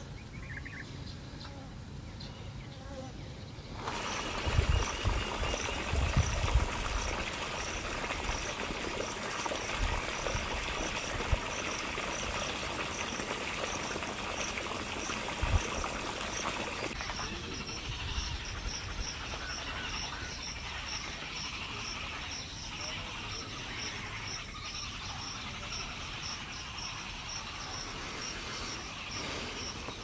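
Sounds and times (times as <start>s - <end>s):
steady hiss: 25.8s - 30.0s.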